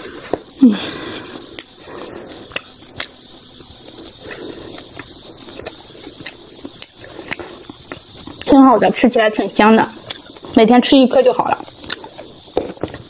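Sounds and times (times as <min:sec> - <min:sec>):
lip smacks: 0:01.5 - 0:03.2, 0:03.8 - 0:08.5, 0:10.0 - 0:10.5, 0:11.6 - 0:13.0
soft chewing: 0:01.5 - 0:08.5, 0:10.0 - 0:10.6, 0:11.6 - 0:13.0.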